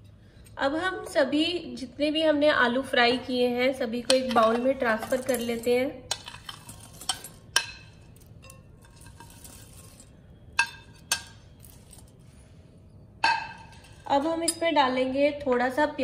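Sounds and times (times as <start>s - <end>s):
metal spoon clinking on glass bowl: 4.1s - 10.0s, 10.6s - 11.7s, 13.2s - 14.8s.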